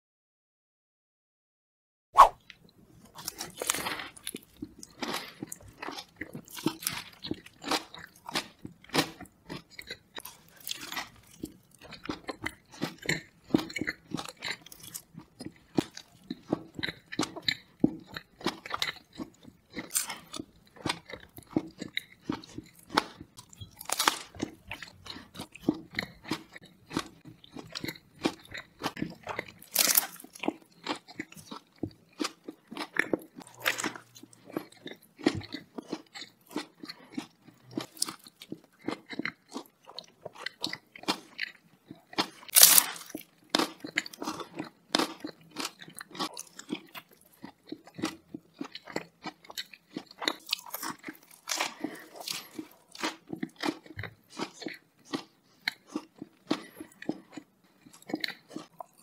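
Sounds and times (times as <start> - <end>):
chewing and crunching: 2.4 - 59.0.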